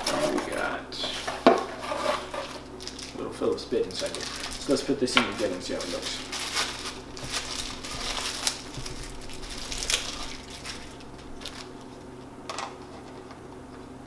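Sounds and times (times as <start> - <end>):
plastic packet rustling: 2.0 - 12.2.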